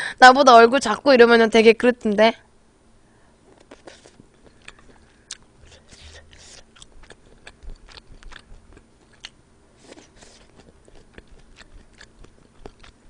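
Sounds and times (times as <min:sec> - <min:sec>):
person chewing with wet mouth sounds: 0:03.6 - 0:13.0.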